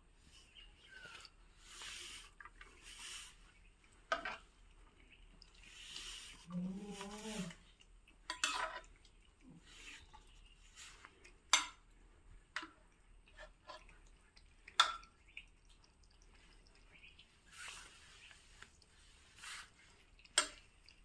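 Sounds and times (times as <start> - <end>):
cats chewing and smacking: 0.1 - 21.0.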